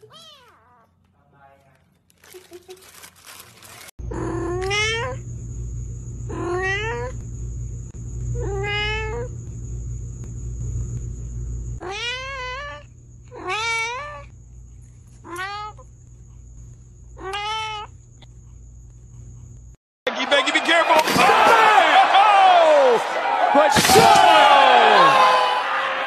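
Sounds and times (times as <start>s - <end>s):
cat meowing: 0.0s - 0.9s, 4.1s - 5.2s, 6.3s - 7.1s, 8.4s - 9.3s, 11.8s - 14.3s, 15.2s - 15.8s, 17.2s - 17.9s
low background hum: 0.0s - 19.8s.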